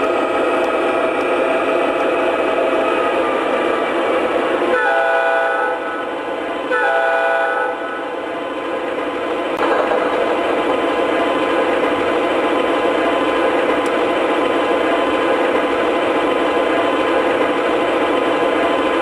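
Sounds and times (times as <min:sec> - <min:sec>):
locomotive horn chord: 0:04.7 - 0:06.0, 0:06.7 - 0:08.1.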